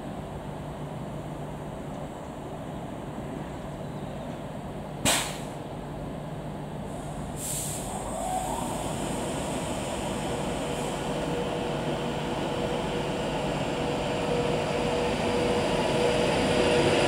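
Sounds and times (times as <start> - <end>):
sharp blast of air: 5.0 - 5.6, 7.0 - 9.9
electric train humming: 6.5 - 17.0.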